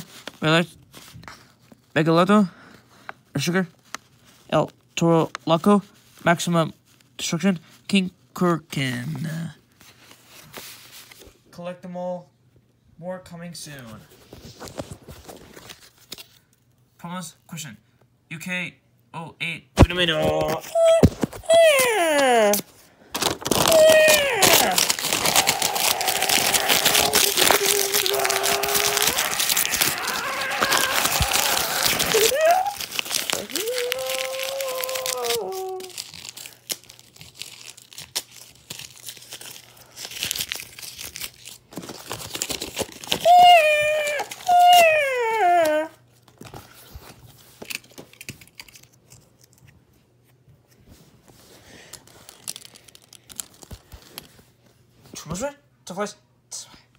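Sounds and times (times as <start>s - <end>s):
plastic packaging crinkling: 22.6s - 44.9s, 51.8s - 54.5s.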